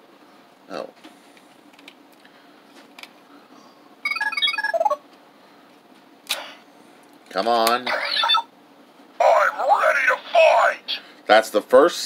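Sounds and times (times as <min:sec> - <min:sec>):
electronic toy beeps: 0:04.1 - 0:05.0, 0:08.0 - 0:08.5.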